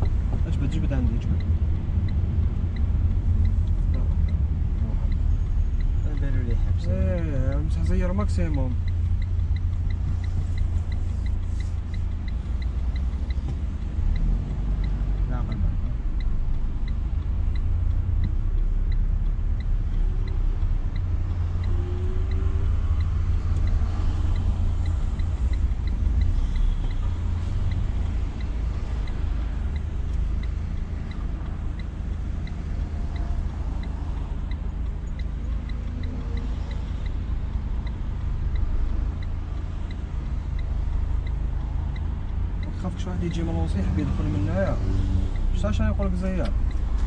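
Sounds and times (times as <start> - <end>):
car engine and road rumble: 0.0 - 47.0.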